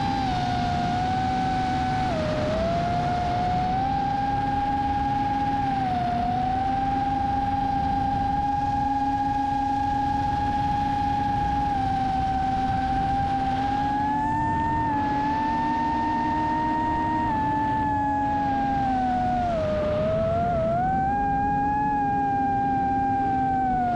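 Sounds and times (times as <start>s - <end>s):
quadcopter motors whining: 0.0s - 23.9s.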